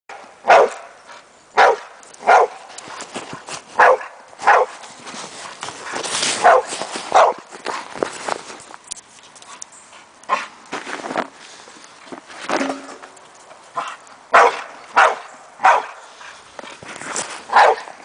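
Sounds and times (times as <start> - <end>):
dog barking: 0.4 - 0.9, 1.6 - 2.6, 3.8 - 4.7, 6.4 - 7.4, 13.8 - 16.0, 17.5 - 17.9.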